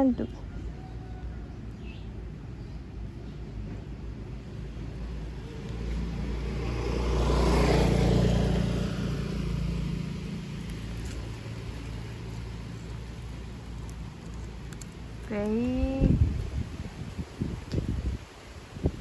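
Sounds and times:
motor vehicle passing by: 0:00.3 - 0:19.0.

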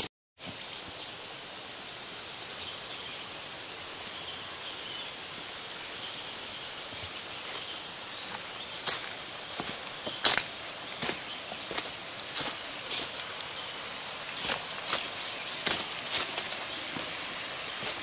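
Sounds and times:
forest hiss: 0:00.0 - 0:18.0
footsteps on dry leaves: 0:07.4 - 0:18.0.

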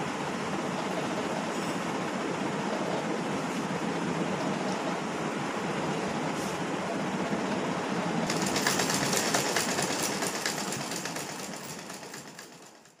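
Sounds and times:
sewing machine clattering: 0:08.2 - 0:13.0.

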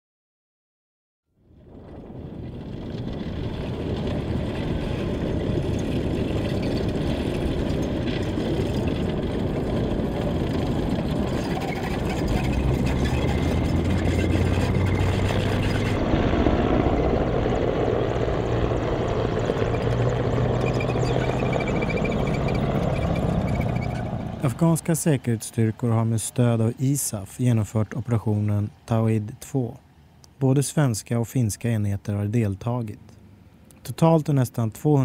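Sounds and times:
deep engine hum: 0:01.4 - 0:29.4
military vehicle engines rumbling: 0:01.4 - 0:35.0.

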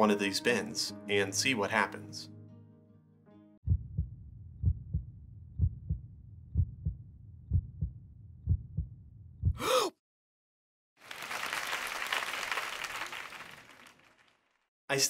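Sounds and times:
heartbeat thumps: 0:03.7 - 0:09.6.

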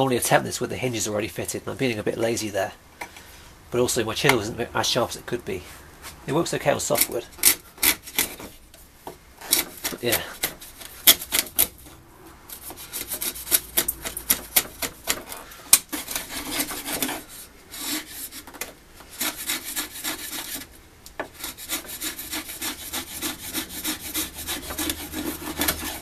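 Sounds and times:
chisel scraping wood: 0:06.7 - 0:08.8, 0:09.4 - 0:26.0.

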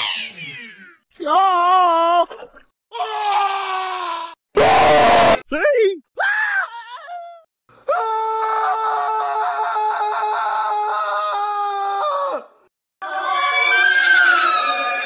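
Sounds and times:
cartoon character screaming: 0:03.0 - 0:05.4, 0:13.0 - 0:15.0.

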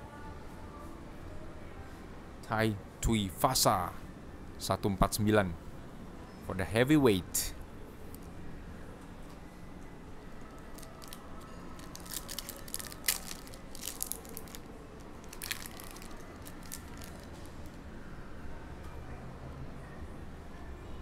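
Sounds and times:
foil wrapper tearing and crinkling: 0:10.7 - 0:17.4.

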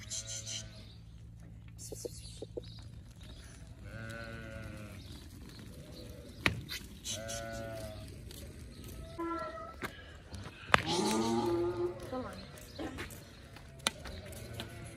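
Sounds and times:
lambs bleating: 0:00.0 - 0:00.9, 0:03.7 - 0:06.3, 0:07.0 - 0:08.1, 0:13.8 - 0:14.9.

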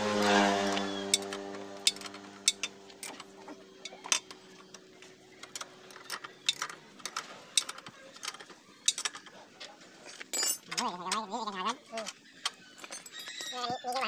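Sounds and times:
engine hum: 0:00.0 - 0:13.4
wrench clicking on metal bolts: 0:01.1 - 0:03.2, 0:05.4 - 0:09.3.

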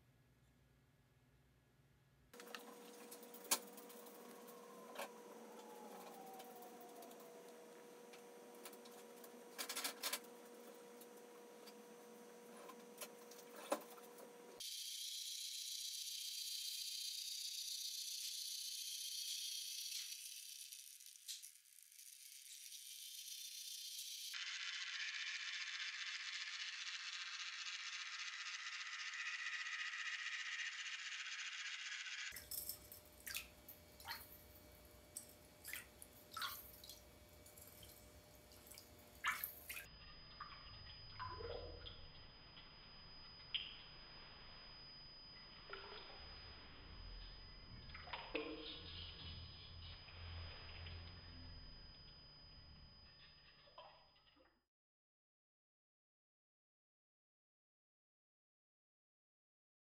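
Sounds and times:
faint hum: 0:00.0 - 0:14.7, 0:22.0 - 0:53.7
water drips and plops: 0:33.2 - 0:34.6, 0:35.2 - 0:42.3, 0:45.7 - 0:46.1, 0:47.9 - 0:48.9, 0:53.5 - 0:54.6.

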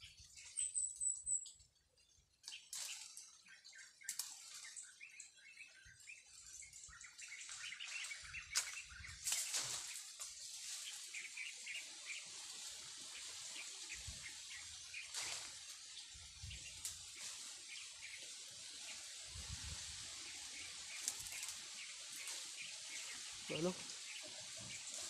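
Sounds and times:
leaves and branches rustling: 0:00.0 - 0:25.0
small birds chirping: 0:00.0 - 0:25.0
twig snaps: 0:04.1 - 0:04.6, 0:08.5 - 0:09.9.

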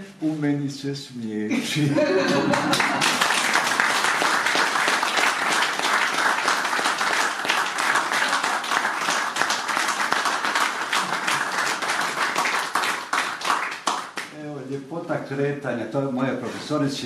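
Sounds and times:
audience applauding: 0:02.3 - 0:14.3.

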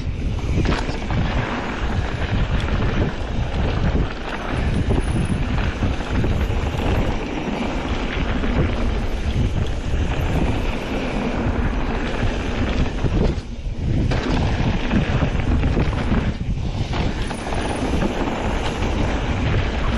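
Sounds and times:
bike knocks and rattles: 0:00.0 - 0:19.9
bike tyres rolling over dirt: 0:00.0 - 0:19.9
wind buffeting microphone: 0:00.0 - 0:19.9.

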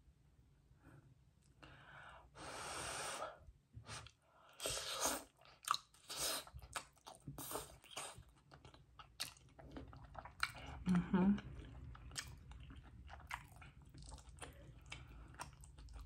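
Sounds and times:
wet chewing with mouth clicks: 0:04.6 - 0:16.0.

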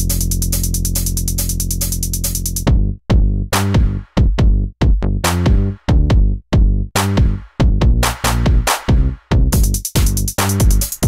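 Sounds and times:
fast ticking beat: 0:00.0 - 0:02.7, 0:09.5 - 0:11.0.

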